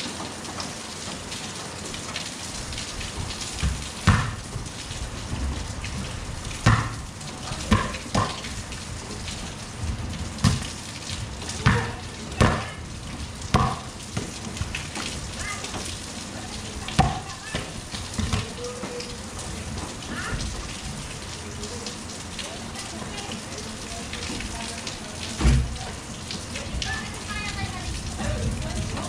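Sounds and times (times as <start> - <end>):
rain on concrete: 0.0 - 29.0
sharp thumps: 6.6 - 7.1.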